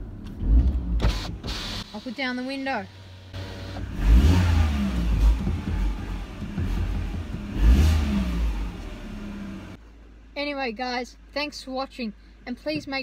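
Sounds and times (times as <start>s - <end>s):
car engine revving: 0.0s - 9.8s.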